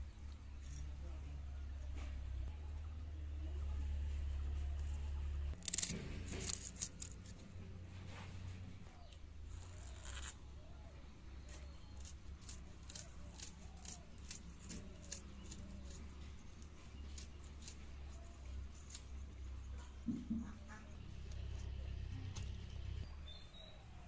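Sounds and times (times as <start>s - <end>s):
knives cutting food: 5.6s - 7.2s, 11.4s - 19.2s.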